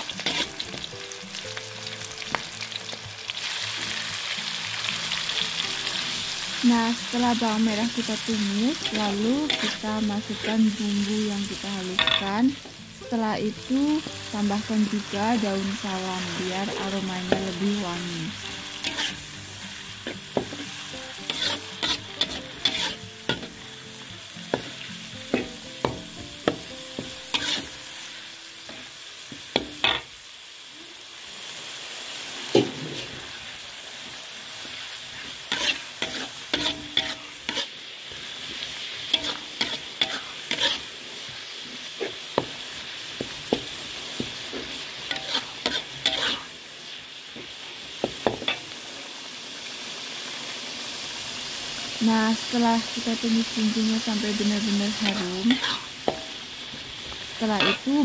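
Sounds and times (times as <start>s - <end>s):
paste sizzling in oil: 0.0s - 58.0s
metal spatula scraping pan: 8.8s - 9.8s, 18.7s - 19.2s, 21.2s - 23.6s, 25.3s - 27.8s, 35.2s - 37.7s, 39.1s - 40.9s, 45.1s - 46.5s, 55.0s - 56.3s.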